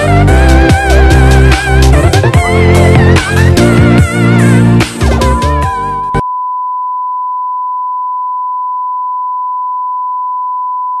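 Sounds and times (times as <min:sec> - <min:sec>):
electronic background music: 0:00.0 - 0:06.2.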